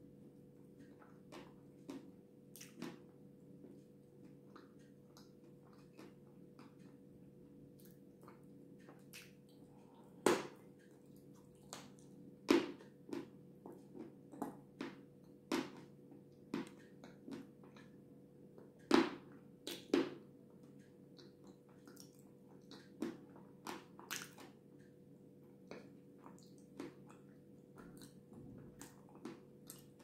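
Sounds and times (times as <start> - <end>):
faint steady hum: 0.0 - 30.0
wet chewing and lip smacks: 0.9 - 3.1, 4.2 - 7.1, 7.7 - 12.2, 21.2 - 24.6, 25.7 - 30.0.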